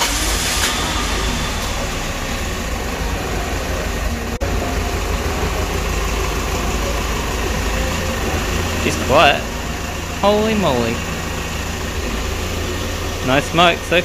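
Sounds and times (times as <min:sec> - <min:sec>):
car engine idling: 0:00.0 - 0:14.0.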